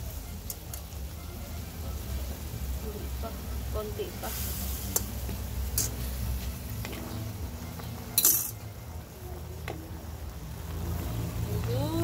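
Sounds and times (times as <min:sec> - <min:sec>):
metal cookware clinking: 0:05.7 - 0:06.0, 0:08.1 - 0:08.7.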